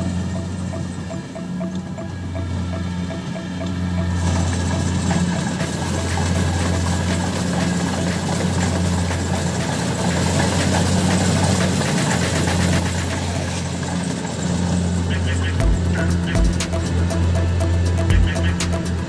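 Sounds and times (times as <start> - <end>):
combine harvester engine running: 0.0 - 19.0.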